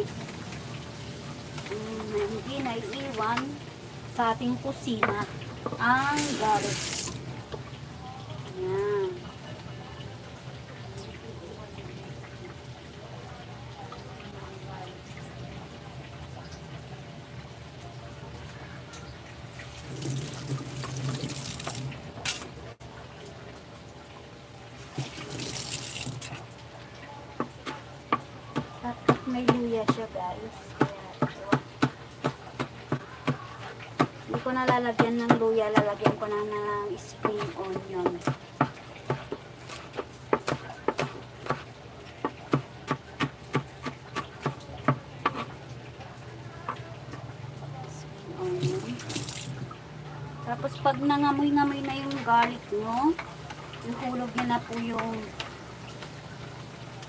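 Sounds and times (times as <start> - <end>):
tap water gushing into sink: 4.2 - 7.8, 18.6 - 23.6, 24.2 - 30.1, 48.3 - 50.0.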